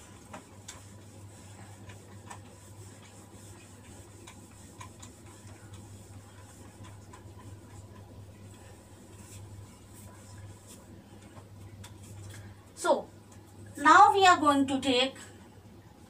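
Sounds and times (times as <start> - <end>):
cloth rubbing on whiteboard: 0.0 - 12.2
steady low hum: 0.0 - 16.0.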